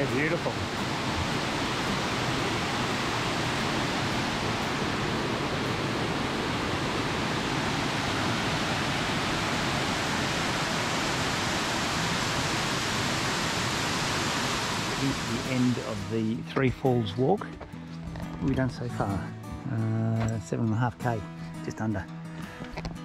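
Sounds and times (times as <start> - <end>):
waterfall rushing: 0.0 - 16.4.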